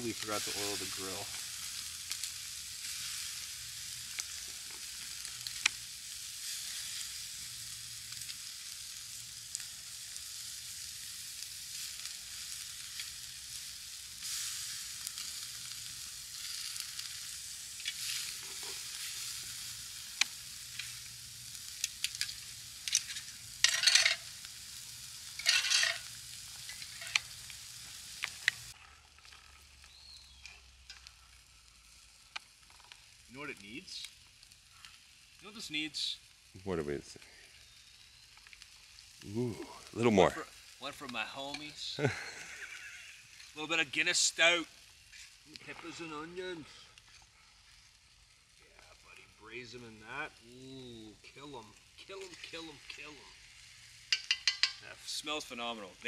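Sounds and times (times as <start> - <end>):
chicken sizzling on a grill: 0.0 - 56.0
metal utensil clicking on grate: 21.8 - 24.2, 25.4 - 27.3, 54.1 - 54.9.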